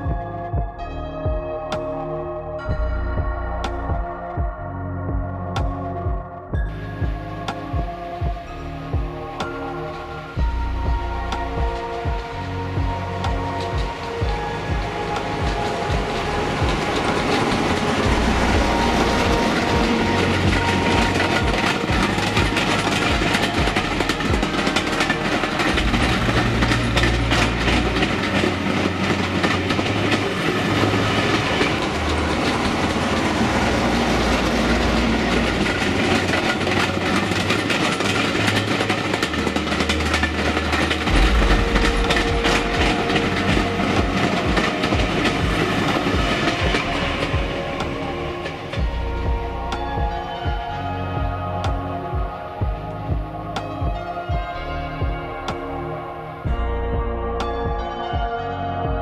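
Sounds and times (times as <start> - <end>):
diesel locomotive engine: 2.7 - 59.0
wheels clattering over rails: 9.4 - 53.9.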